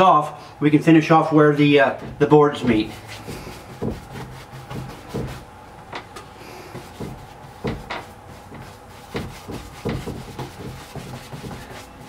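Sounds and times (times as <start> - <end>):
paintbrush slapping and dragging: 1.6 - 5.5, 6.5 - 12.0
brush knocking on door: 1.9 - 6.0, 6.7 - 12.0.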